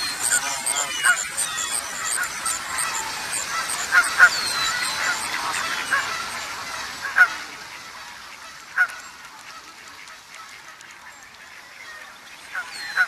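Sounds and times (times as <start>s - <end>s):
short bird calls: 0.0s - 7.3s
background noise: 0.0s - 13.0s.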